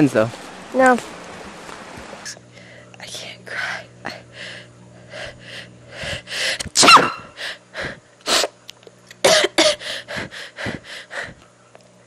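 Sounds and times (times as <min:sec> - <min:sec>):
woman sniffling and sobbing: 0:09.3 - 0:11.4.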